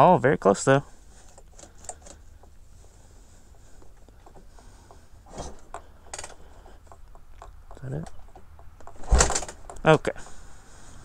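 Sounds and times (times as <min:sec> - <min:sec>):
handling clicks and knocks: 0:01.2 - 0:03.0, 0:03.8 - 0:10.0.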